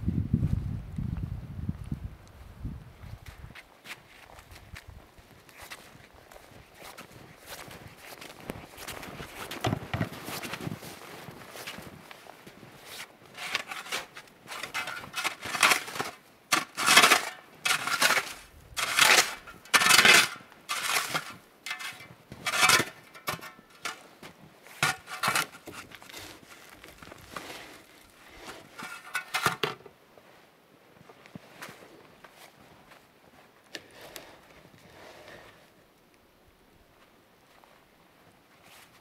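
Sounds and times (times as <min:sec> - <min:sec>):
brushing snow off logs: 0:06.8 - 0:29.4.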